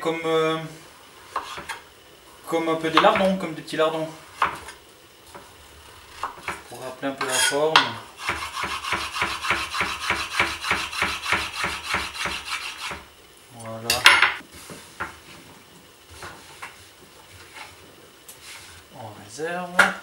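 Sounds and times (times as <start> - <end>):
knife chopping on wooden board: 8.2 - 13.0
knife scraping pieces together: 8.2 - 13.0.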